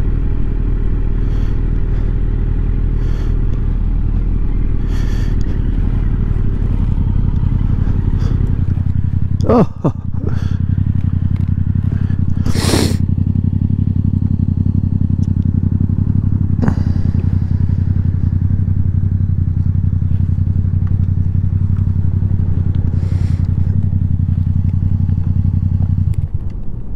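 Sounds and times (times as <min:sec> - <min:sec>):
motorcycle engine idling: 0:00.0 - 0:26.9.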